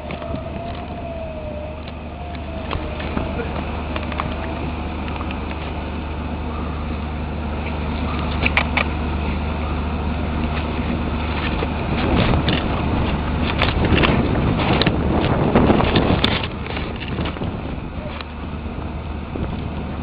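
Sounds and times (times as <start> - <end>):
low engine-like hum: 0.0 - 20.0
wind buffeting microphone: 0.0 - 20.0.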